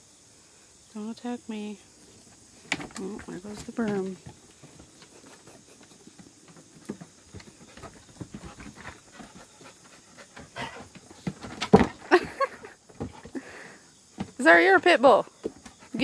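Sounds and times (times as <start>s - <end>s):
animals thumping and scuffling: 2.2s - 16.0s
claws scratching on wooden boards: 2.3s - 12.0s.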